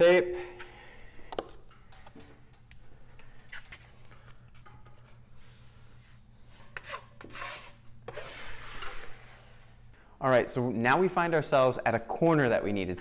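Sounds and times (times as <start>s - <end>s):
taping knife scraping: 4.6s - 9.8s.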